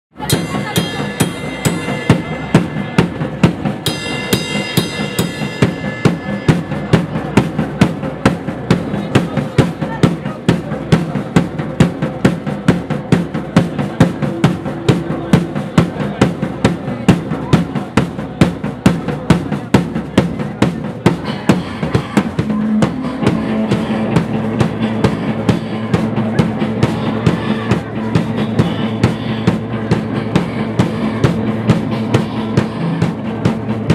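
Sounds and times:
drum kit beat: 0.1s - 33.9s
live rock band playing: 0.2s - 7.3s, 21.4s - 33.9s.

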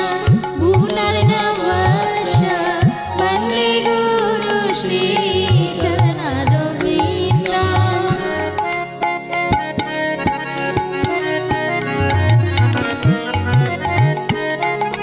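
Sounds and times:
person singing: 0.0s - 8.9s
held instrumental notes: 0.0s - 15.0s.

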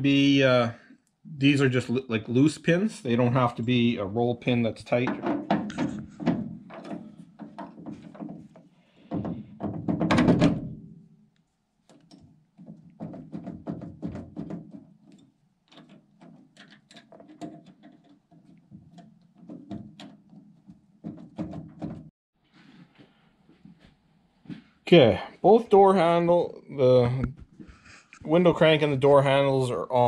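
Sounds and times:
metal clicks and knocks: 4.9s - 11.0s, 11.9s - 22.1s.

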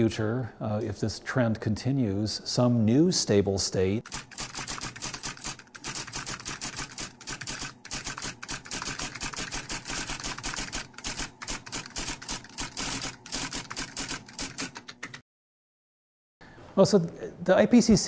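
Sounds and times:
typewriter keys clattering: 4.0s - 15.2s.

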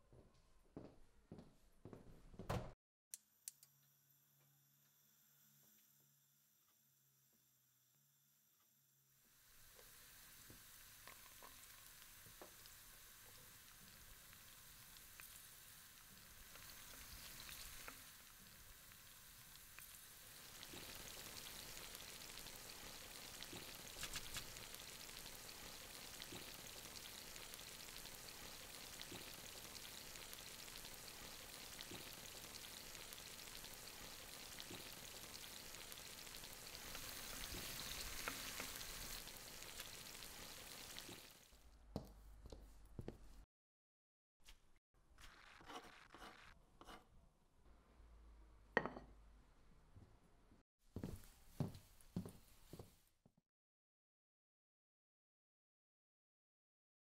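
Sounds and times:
food sizzling in a pan: 9.0s - 41.6s, 45.2s - 46.6s.

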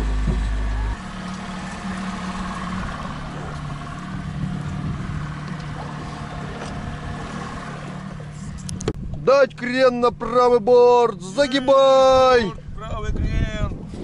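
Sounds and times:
boat engine running: 0.0s - 14.0s
water hissing along hull: 1.4s - 8.6s.

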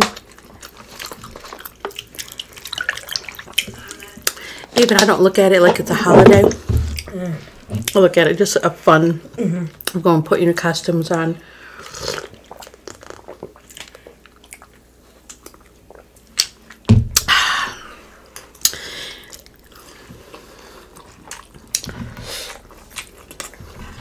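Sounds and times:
chewing with wet mouth clicks: 0.0s - 4.4s, 12.1s - 16.9s, 18.4s - 23.6s.

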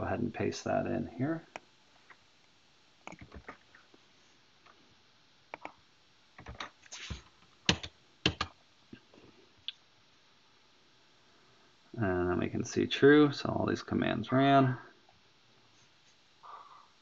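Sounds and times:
computer keyboard key presses: 3.0s - 3.6s, 7.7s - 8.5s.

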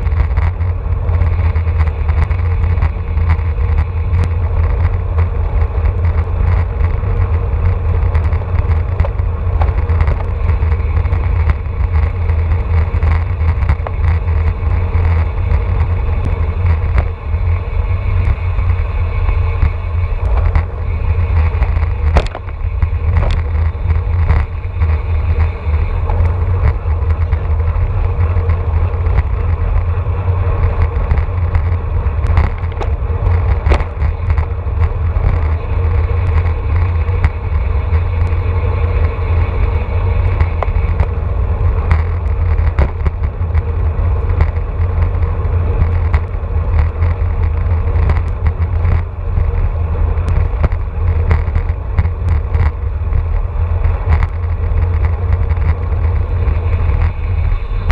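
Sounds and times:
wind rumbling on microphone: 0.0s - 57.9s.

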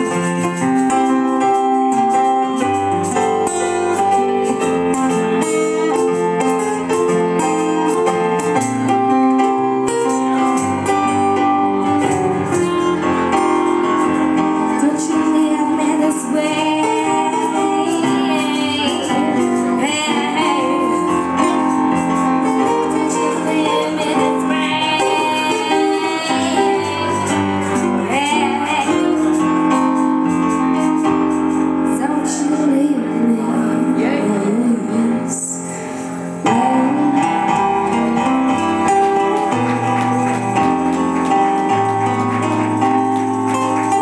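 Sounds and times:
acoustic guitar: 0.0s - 44.0s
electric piano: 0.0s - 44.0s
woman singing: 14.4s - 30.0s, 31.8s - 39.2s.

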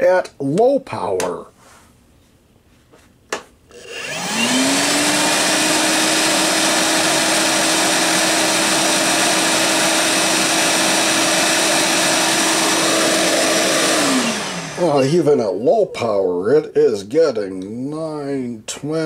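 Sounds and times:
vacuum motor whine and air rush: 3.7s - 15.2s.

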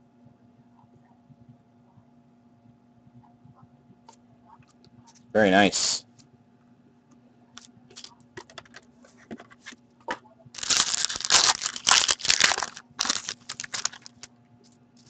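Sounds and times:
wrapper crinkling and tearing: 10.6s - 14.3s.

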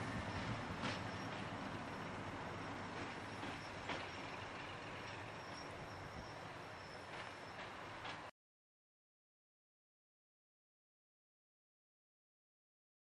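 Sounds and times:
diesel locomotive engine: 0.0s - 8.3s.

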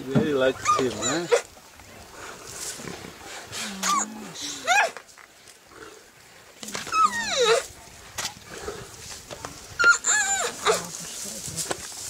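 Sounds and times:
lion high-pitched calls: 0.5s - 1.5s, 3.5s - 5.0s, 6.7s - 7.7s, 9.8s - 10.9s
lions growling: 0.5s - 5.0s, 5.6s - 11.2s.

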